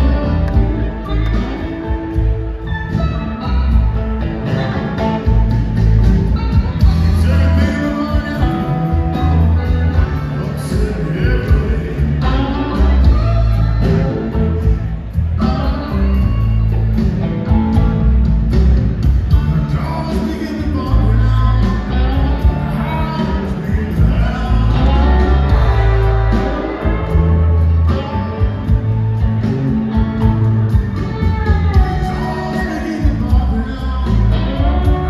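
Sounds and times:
live rock band playing blues: 0.0s - 35.0s
man singing: 6.8s - 16.5s, 19.3s - 28.8s, 31.5s - 35.0s.

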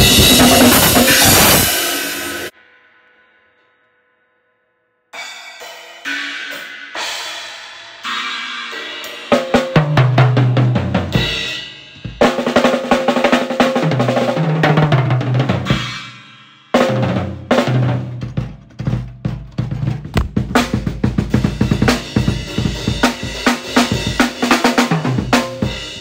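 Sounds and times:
fast drumming on drum kit: 0.0s - 2.5s, 9.1s - 16.0s, 16.8s - 26.0s.

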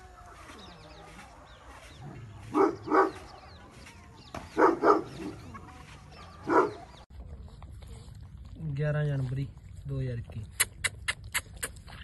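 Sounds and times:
dog barking: 2.5s - 3.4s, 4.6s - 5.3s, 6.4s - 6.9s.

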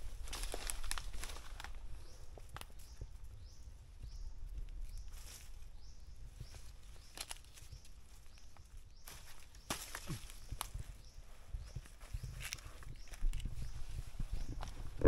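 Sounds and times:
footsteps on forest floor: 0.0s - 3.0s, 6.3s - 14.9s.

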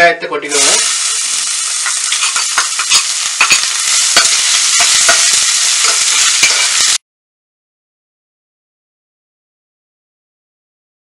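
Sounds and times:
onions sizzling in oil: 0.5s - 7.0s
ladle scraping pan: 0.6s - 7.0s.

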